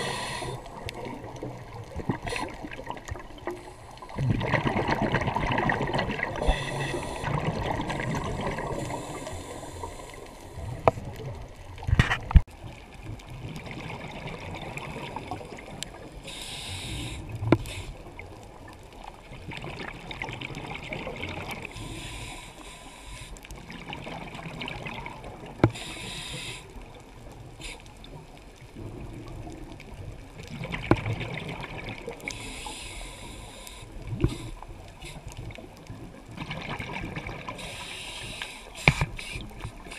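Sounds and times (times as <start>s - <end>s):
hissing inhalations: 0.0s - 0.8s, 6.4s - 7.4s, 8.6s - 10.7s, 16.2s - 18.0s, 21.7s - 23.4s, 25.7s - 26.8s, 32.3s - 35.3s, 37.6s - 39.9s
scuba regulator breathing underwater: 0.0s - 0.9s, 2.1s - 2.8s, 3.4s - 10.9s, 16.2s - 18.1s, 21.6s - 23.4s, 25.7s - 26.8s, 32.2s - 35.3s, 37.5s - 39.9s
gurgling exhaled bubbles: 0.0s - 16.2s, 17.0s - 21.7s, 23.6s - 25.6s, 28.0s - 32.4s, 34.0s - 37.8s.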